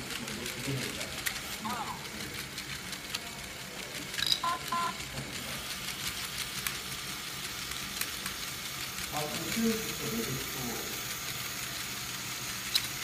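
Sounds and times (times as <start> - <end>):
electronic beeps: 4.2 - 5.0.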